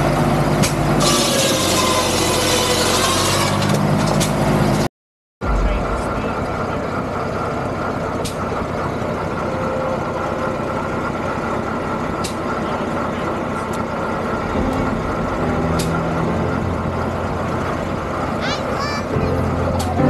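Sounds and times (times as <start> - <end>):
tractor engine idling: 5.4 - 20.0.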